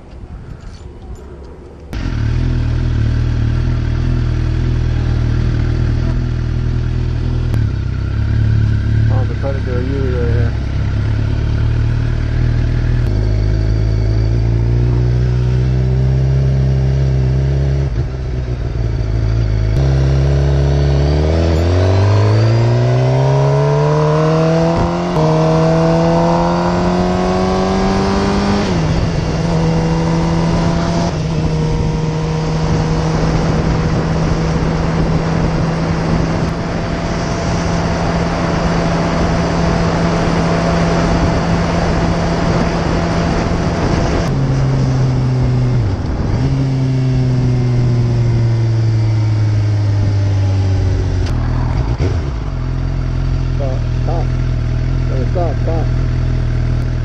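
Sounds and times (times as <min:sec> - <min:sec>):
wind noise: 0:00.0 - 0:02.1, 0:24.2 - 0:53.5
motorcycle engine accelerating: 0:01.2 - 0:57.0.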